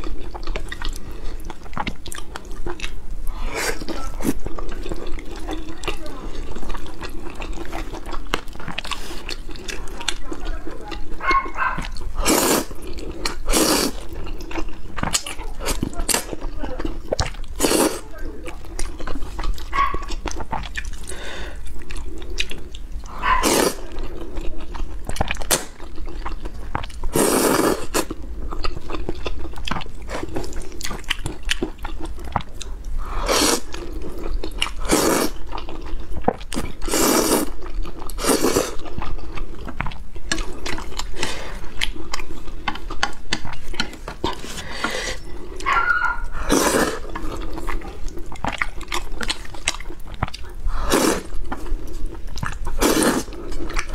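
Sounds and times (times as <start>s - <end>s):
wet chewing and smacking: 0.0s - 53.9s
wet noodle slurps: 12.2s - 14.7s, 17.6s - 18.0s, 22.4s - 24.0s, 27.1s - 28.2s, 33.0s - 35.9s, 36.5s - 38.9s, 46.2s - 53.9s.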